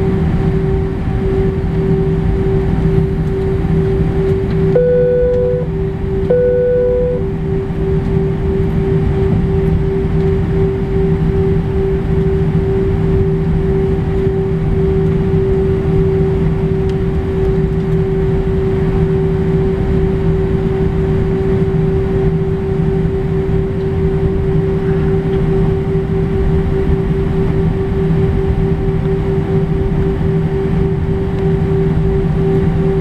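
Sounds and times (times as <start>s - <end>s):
low rumble: 0.0s - 19.0s
jet engines humming: 0.0s - 33.0s.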